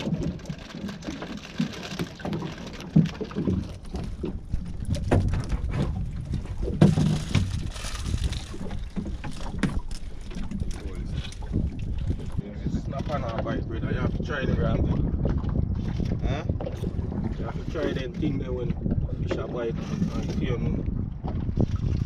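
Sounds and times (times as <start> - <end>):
water slapping boat hull: 0.0 - 22.0
wind buffeting microphone: 3.0 - 22.0.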